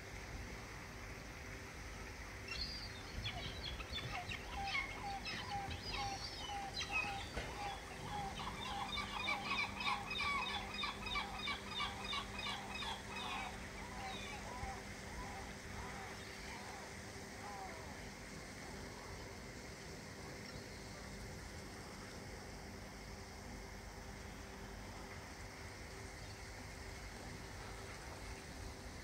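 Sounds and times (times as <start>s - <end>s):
waterfowl calling: 3.3s - 17.9s.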